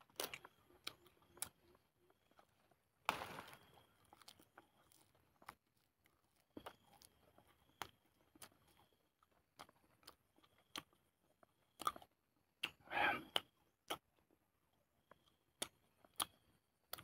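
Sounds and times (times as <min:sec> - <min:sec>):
chewing leaves: 0:00.0 - 0:12.1.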